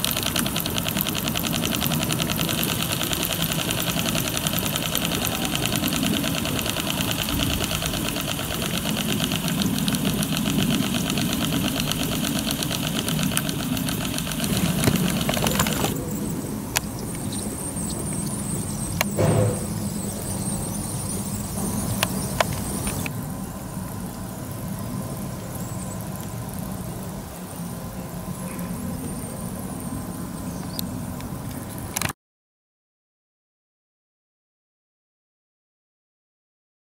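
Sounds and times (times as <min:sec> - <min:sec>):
sharp clicks: 0:00.0 - 0:16.0, 0:21.0 - 0:23.1
model steam engine running: 0:00.0 - 0:28.4.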